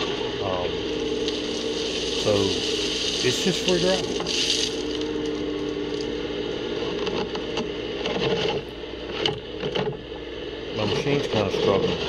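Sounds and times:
excavator engine humming: 0.0s - 12.0s
bucket scraping gravelly dirt: 0.9s - 5.5s.

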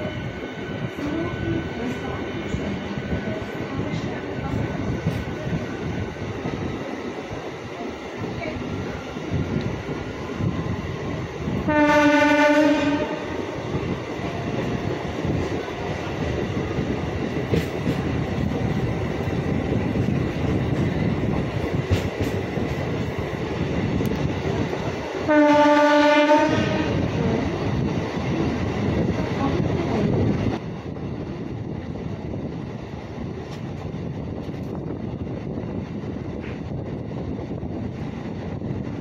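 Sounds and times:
electric train rumbling on track: 0.0s - 39.0s
train horn: 11.6s - 13.4s, 25.3s - 27.2s.

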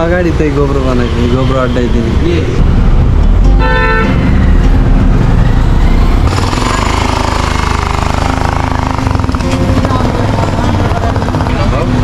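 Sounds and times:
vehicle horn honking: 3.5s - 4.4s
motorcycle engine running: 4.4s - 12.0s.

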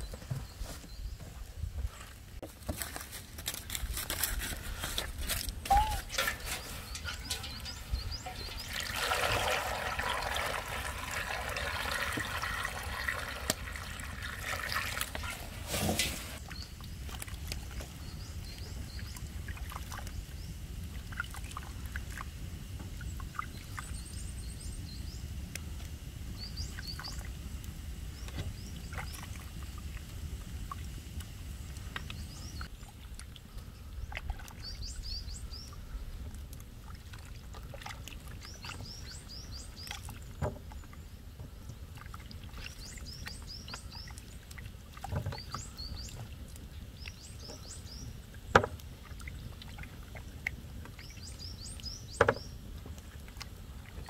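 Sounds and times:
birds chirping: 5.6s - 14.2s, 45.2s - 48.2s.

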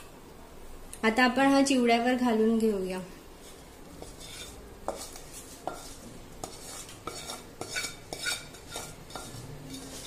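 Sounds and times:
wooden spatula scraping pan: 3.3s - 10.0s
spatula tapping on pan: 4.8s - 9.3s.

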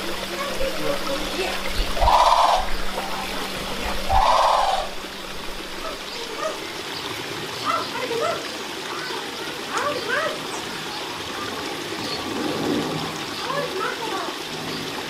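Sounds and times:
small birds chirping: 0.0s - 12.4s
water trickling: 0.0s - 15.0s
loud bird calls: 1.3s - 9.2s.

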